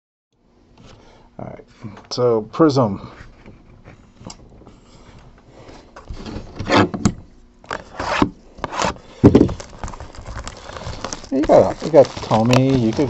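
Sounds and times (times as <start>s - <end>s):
plastic shrink wrap tearing: 8.7s - 13.0s.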